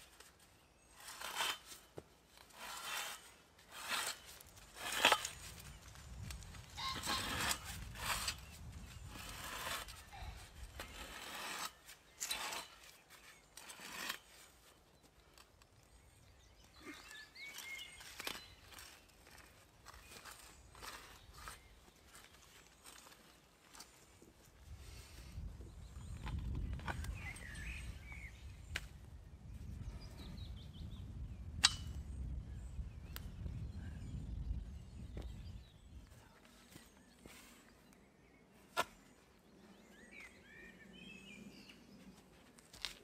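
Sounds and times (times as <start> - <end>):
auger scraping into soil: 0.0 - 14.7, 16.9 - 24.0
wind rumble on microphone: 4.6 - 11.2, 24.6 - 36.4
bird chirping: 14.6 - 19.1, 25.4 - 28.8, 29.5 - 42.2.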